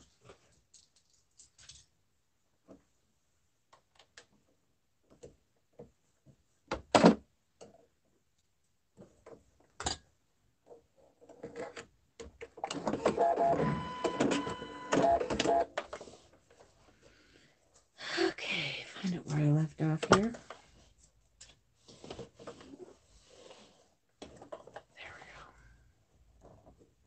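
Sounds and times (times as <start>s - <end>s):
electric sewing machine stitching: 12.8s - 15.6s.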